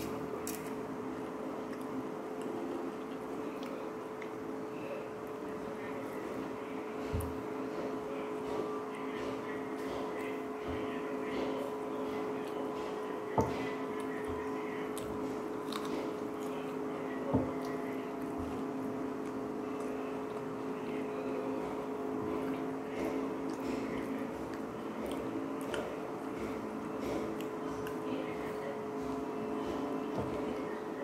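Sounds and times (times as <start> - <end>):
steady hum with held tones: 0.0 - 31.0
person chewing food: 9.2 - 20.6, 21.7 - 28.0.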